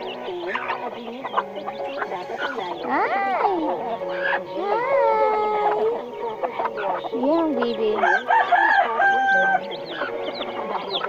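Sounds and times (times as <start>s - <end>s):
chicken clucking: 0.0s - 11.0s
chicks peeping: 0.0s - 11.0s
rooster crowing: 8.0s - 9.7s.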